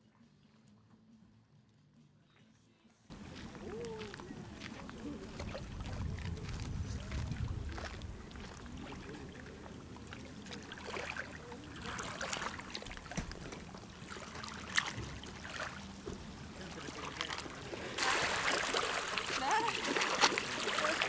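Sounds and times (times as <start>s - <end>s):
small waves lapping: 3.1s - 21.0s
soft water splashes: 3.1s - 21.0s.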